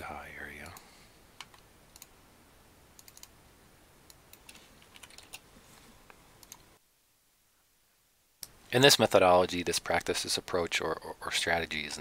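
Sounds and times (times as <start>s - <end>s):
keyboard and mouse clicks: 1.4s - 2.1s, 3.0s - 3.4s, 4.1s - 5.4s, 6.4s - 6.8s.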